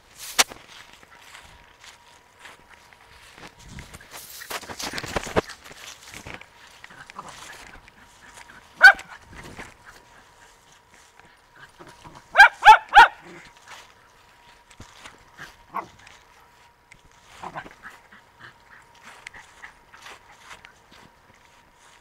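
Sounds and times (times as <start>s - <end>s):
small dog barking: 8.5s - 9.2s, 12.0s - 13.5s, 15.7s - 16.0s.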